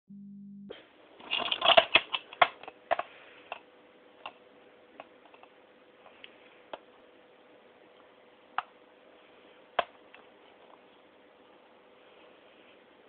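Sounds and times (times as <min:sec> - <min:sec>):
hard plastic clicking and rattling: 0:01.2 - 0:03.6.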